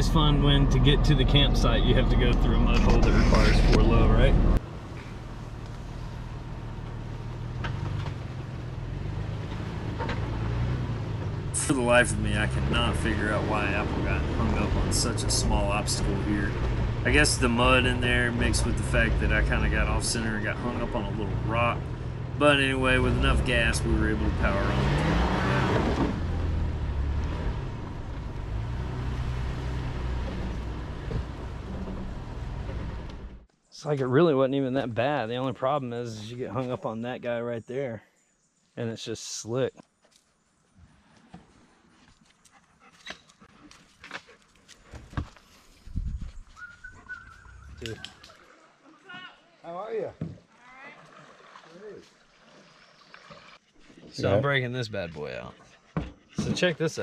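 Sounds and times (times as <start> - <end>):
off-road vehicle engine rumbling: 0.0 - 38.0, 51.2 - 57.0.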